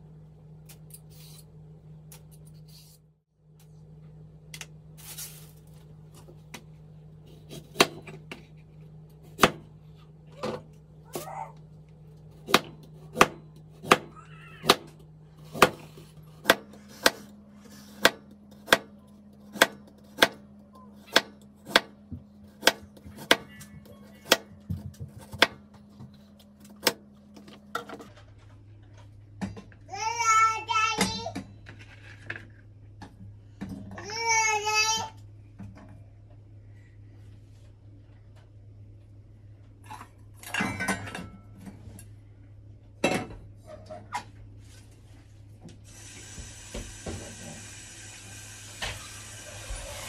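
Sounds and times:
child crying out: 14.1s - 14.8s.

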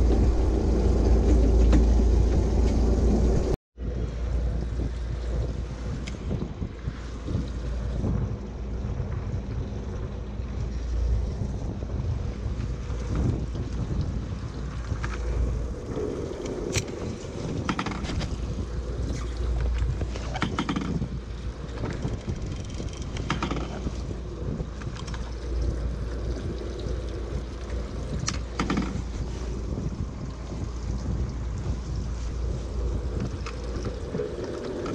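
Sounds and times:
water washing against hull: 0.0s - 34.9s
wind buffeting microphone: 0.0s - 34.9s
sharp clicks and knocks: 19.7s - 21.1s, 23.0s - 23.9s, 28.2s - 29.0s.

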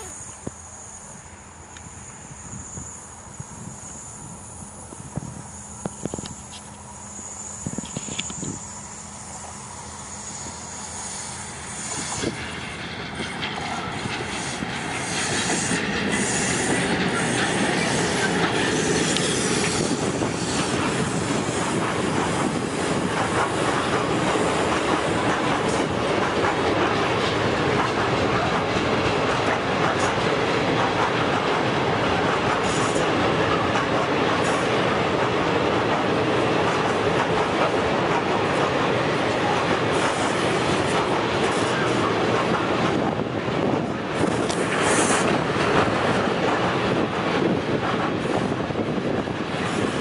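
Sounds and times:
freight train passing: 0.0s - 50.0s
train wheel rumble: 0.0s - 50.0s
clickety-clack over rail joints: 11.6s - 50.0s.

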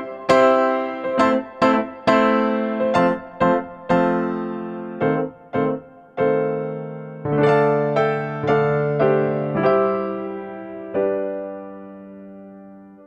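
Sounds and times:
piano-like keyboard tune: 0.0s - 13.0s.

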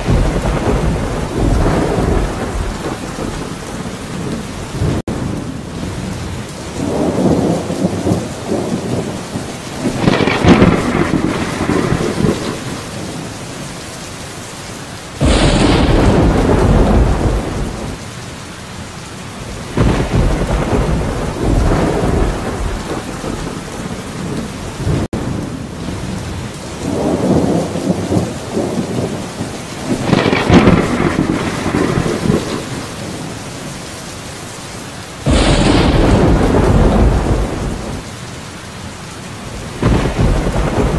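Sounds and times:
loud thunderclap: 0.0s - 5.4s, 9.8s - 13.1s, 15.2s - 18.0s, 19.5s - 25.2s, 29.8s - 33.2s, 35.2s - 38.1s, 39.6s - 40.9s
thunder rumbling: 0.0s - 13.6s, 15.2s - 18.2s, 19.4s - 33.7s, 35.0s - 38.2s, 39.4s - 40.9s
heavy rain: 0.0s - 40.9s.

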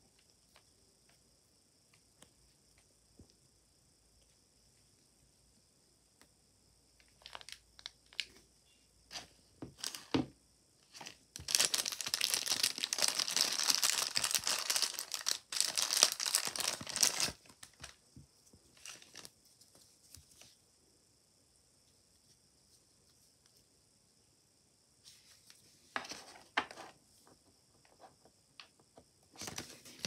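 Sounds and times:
plastic bag crinkling and tearing: 7.2s - 8.3s, 11.4s - 17.9s.

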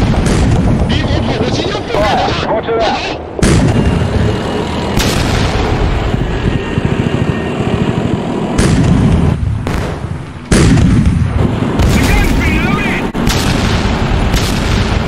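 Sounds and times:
tank gunfire: 0.0s - 1.7s, 3.4s - 4.2s, 4.9s - 15.0s
shell explosions with rumble: 0.0s - 2.1s, 3.3s - 4.0s, 4.9s - 6.5s, 8.5s - 15.0s.

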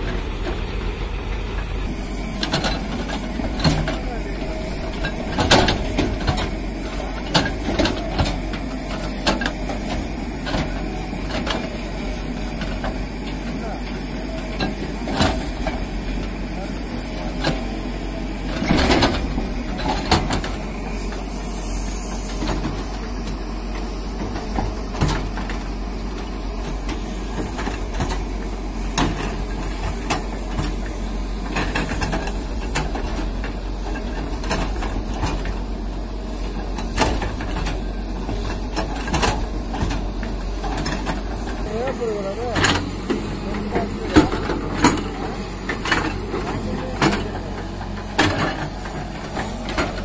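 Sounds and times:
bucket and arm clanking: 0.0s - 50.0s
diesel excavator engine running: 0.0s - 50.0s.

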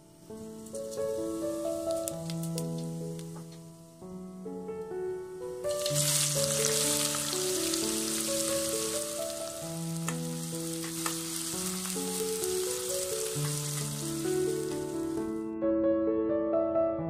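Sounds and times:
onions sizzling in hot oil: 0.2s - 4.1s, 5.6s - 15.4s
spoon stirring in pan: 10.0s - 14.9s.

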